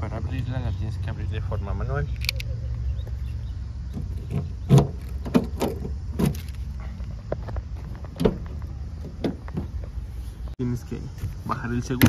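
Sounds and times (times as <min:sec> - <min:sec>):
van door clicks and clunks: 0:03.8 - 0:10.0.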